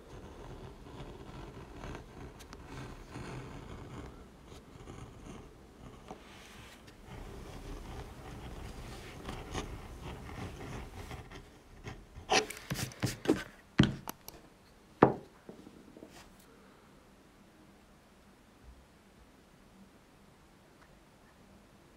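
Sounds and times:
tool scraping leather edge: 0:00.0 - 0:13.5.

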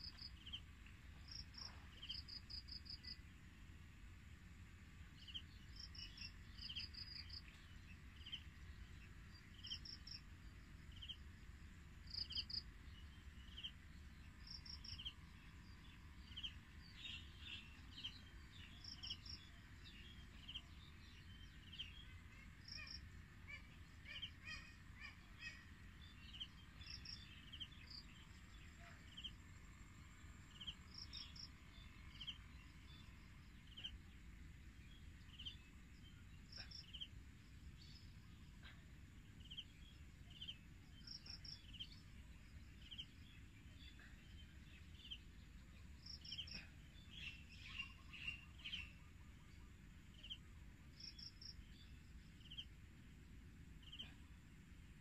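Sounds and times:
birds chirping: 0:30.5 - 0:55.0.

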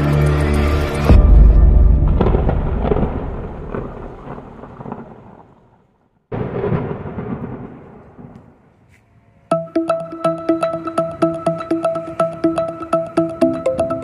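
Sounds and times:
deep rumbling boom: 0:01.1 - 0:05.5.

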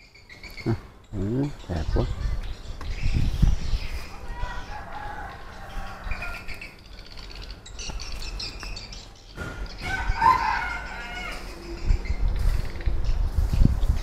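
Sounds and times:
rooster crowing: 0:04.6 - 0:06.6, 0:09.8 - 0:11.7.

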